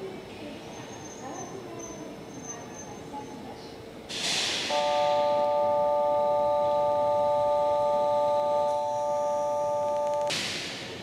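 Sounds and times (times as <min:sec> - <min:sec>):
electronic tone chord: 0:04.7 - 0:10.3.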